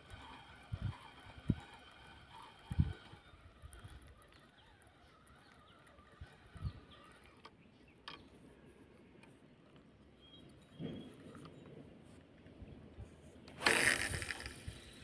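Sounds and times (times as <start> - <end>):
distant bird calls: 0.1 - 8.8, 10.0 - 11.9.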